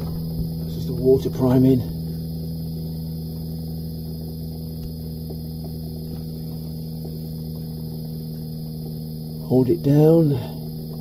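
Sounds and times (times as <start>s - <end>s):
circulation pump humming: 0.0s - 11.0s
faint ticks: 2.6s - 9.5s.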